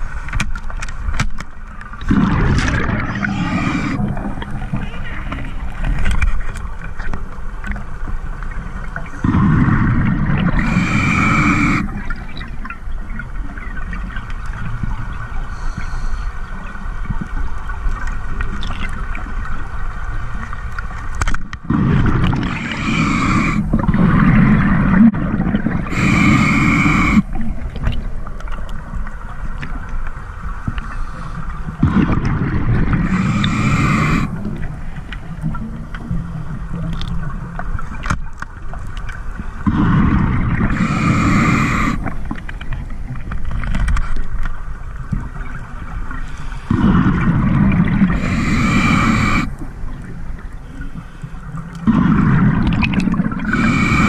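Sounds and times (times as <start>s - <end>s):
underwater water noise: 0.0s - 54.0s
gurgling exhaled bubbles: 1.8s - 7.0s, 9.0s - 14.0s, 21.6s - 28.9s, 31.7s - 37.4s, 39.6s - 43.7s, 46.6s - 50.6s, 51.7s - 54.0s.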